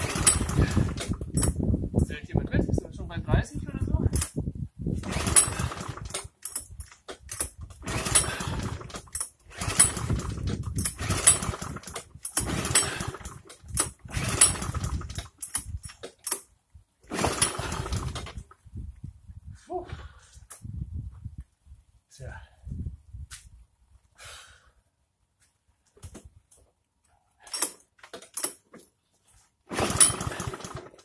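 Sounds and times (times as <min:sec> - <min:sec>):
lawn mower recoil starter pulls: 0:00.0 - 0:01.6, 0:05.0 - 0:18.5, 0:27.5 - 0:28.6, 0:29.7 - 0:31.0.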